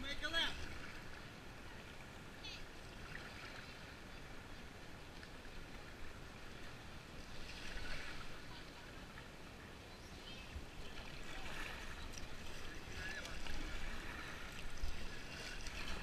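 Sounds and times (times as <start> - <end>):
paddle splashing in water: 5.1 - 9.3, 10.5 - 16.0
water running off paddle: 10.6 - 16.0.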